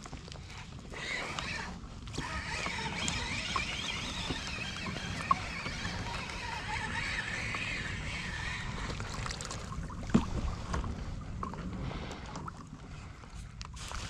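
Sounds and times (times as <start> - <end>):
water noise: 0.0 - 14.0
faint wavering whine: 0.5 - 13.7.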